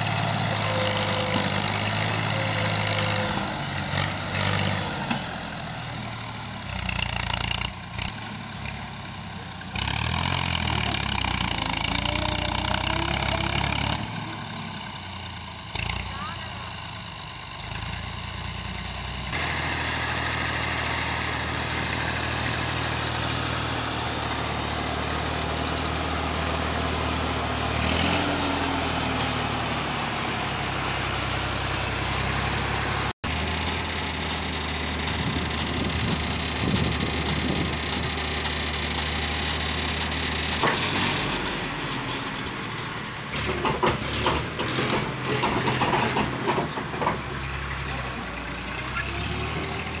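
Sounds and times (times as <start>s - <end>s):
tractor diesel engine under load: 0.0s - 50.0s
soil clattering from tipping trolley: 40.6s - 47.4s.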